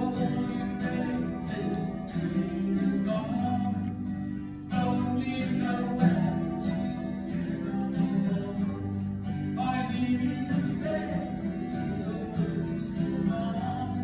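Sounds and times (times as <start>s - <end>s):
person singing: 0.0s - 4.0s
acoustic guitar strumming: 0.0s - 14.0s.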